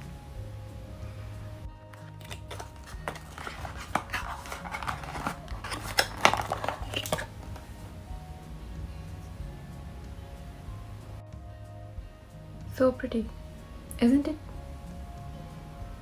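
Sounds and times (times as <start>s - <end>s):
background music: 0.0s - 16.0s
cardboard box rustling and clicking: 2.0s - 7.6s.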